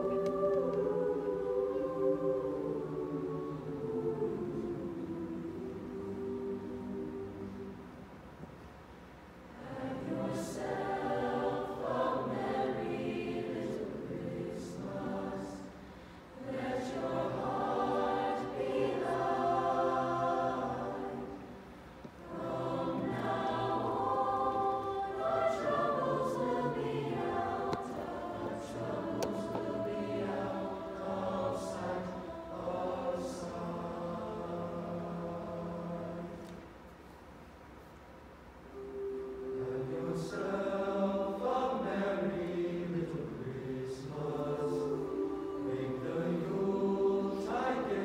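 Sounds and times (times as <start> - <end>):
choir singing in harmony: 0.0 - 8.5, 9.1 - 37.1, 38.6 - 48.0.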